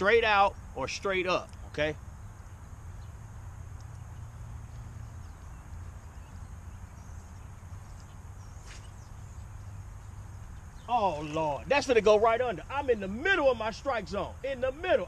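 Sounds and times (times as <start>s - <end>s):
faint light ticks: 3.7s - 4.1s.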